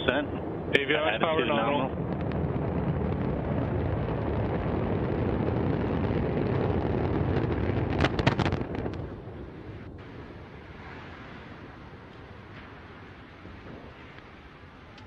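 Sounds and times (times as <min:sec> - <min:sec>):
deep explosion rumble: 0:00.0 - 0:15.0
sharp cracks: 0:01.9 - 0:09.2.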